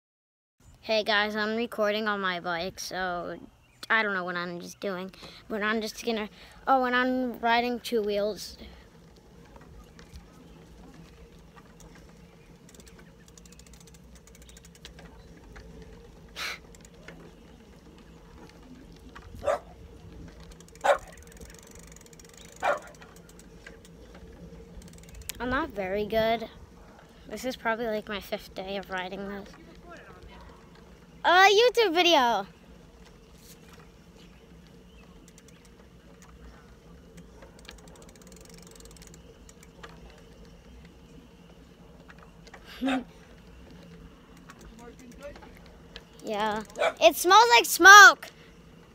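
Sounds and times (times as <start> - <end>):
bicycle rolling on asphalt: 0.8 - 48.9
low steady rumble: 1.1 - 47.0
freewheel ratchet clicking: 11.4 - 17.4, 20.2 - 25.5, 35.2 - 36.4, 37.1 - 40.9, 43.8 - 46.8
dog barking: 19.4 - 19.7, 20.8 - 21.2, 22.6 - 23.0, 42.8 - 43.1, 46.7 - 47.0.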